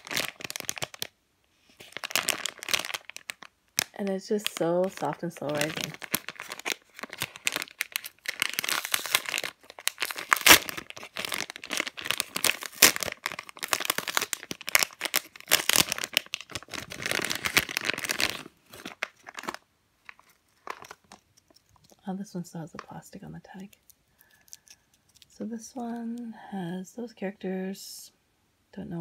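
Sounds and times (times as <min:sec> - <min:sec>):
plastic bag crinkling: 0:00.0 - 0:01.1, 0:01.7 - 0:22.1, 0:22.8 - 0:26.0.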